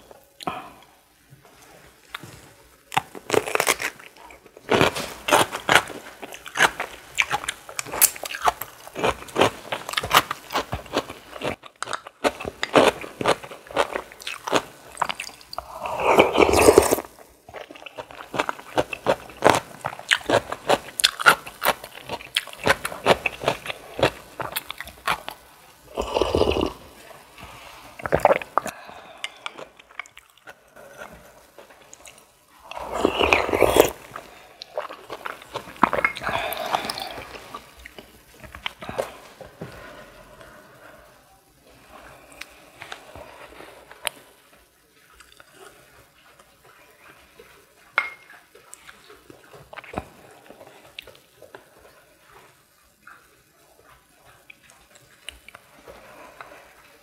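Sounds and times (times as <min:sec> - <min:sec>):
crunchy bites and chewing: 0:02.8 - 0:26.9, 0:28.0 - 0:39.3.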